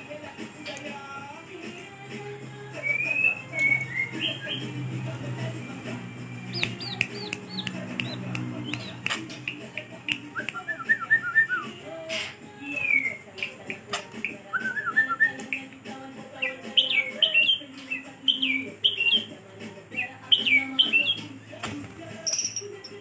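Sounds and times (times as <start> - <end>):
finger snaps: 6.4 - 11.7, 12.7 - 15.8
bird chattering and calling: 16.4 - 19.3.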